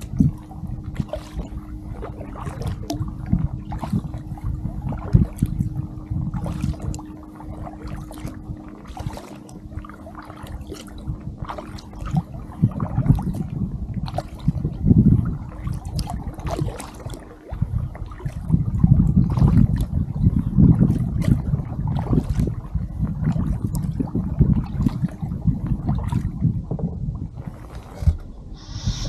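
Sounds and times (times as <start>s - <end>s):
low rumble: 0.0s - 15.6s, 25.3s - 29.0s
faint steady hum: 0.0s - 16.3s, 28.1s - 29.0s
paddle splashing in water: 0.0s - 29.0s
water lapping against hull: 0.0s - 29.0s.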